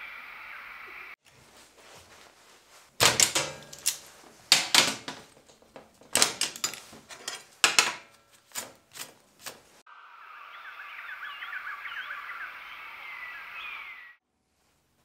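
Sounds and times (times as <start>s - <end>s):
metal clamps clicking and clanking: 3.0s - 8.2s.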